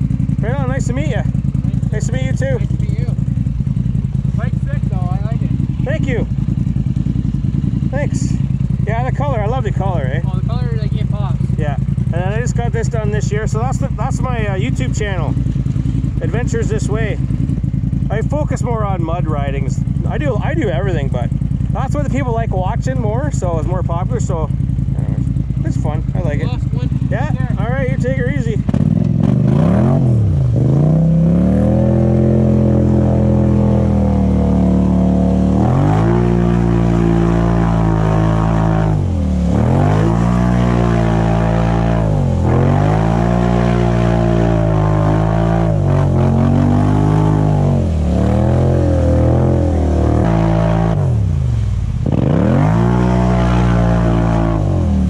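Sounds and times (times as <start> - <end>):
atv engine revving: 0.0 - 55.0
water churning and spraying: 13.0 - 55.0.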